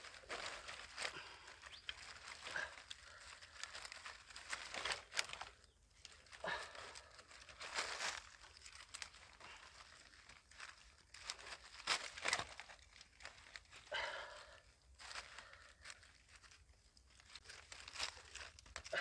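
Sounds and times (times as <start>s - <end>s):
leaves rustling: 0.0s - 19.0s
dry sticks snapping: 0.3s - 6.4s.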